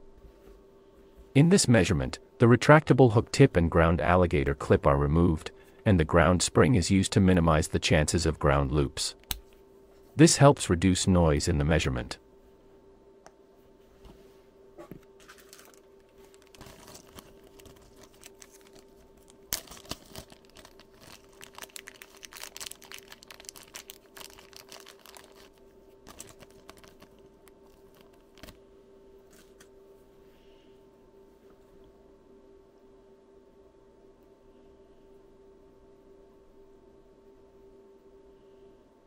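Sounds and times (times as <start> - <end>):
plastic bag crinkling: 15.2 - 28.6.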